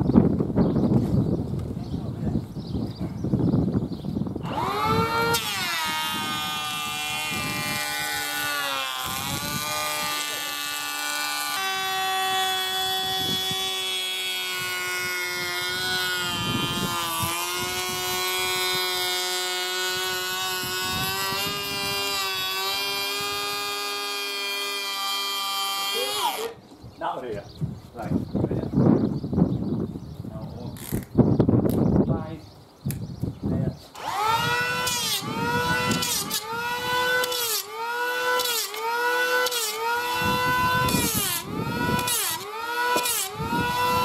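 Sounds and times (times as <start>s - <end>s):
electric planer whining: 4.4s - 26.5s, 34.0s - 44.0s.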